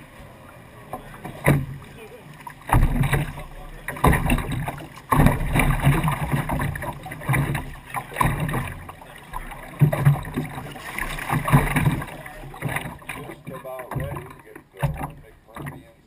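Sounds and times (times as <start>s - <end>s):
water lapping against boat hull: 0.0s - 16.0s.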